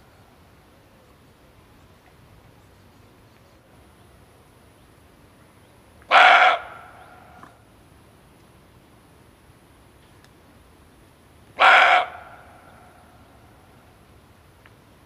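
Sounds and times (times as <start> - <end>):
deer barking: 6.1 - 7.0, 11.6 - 12.6.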